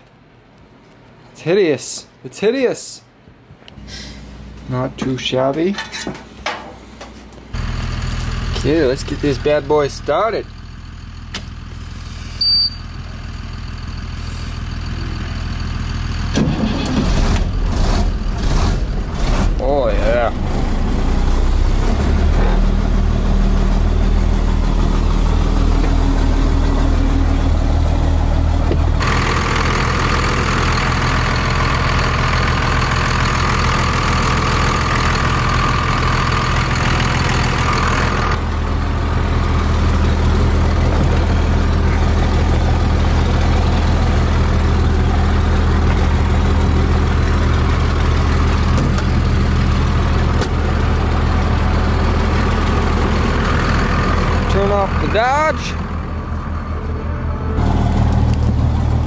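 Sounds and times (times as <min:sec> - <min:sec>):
diesel engine idling: 0:07.5 - 0:59.0.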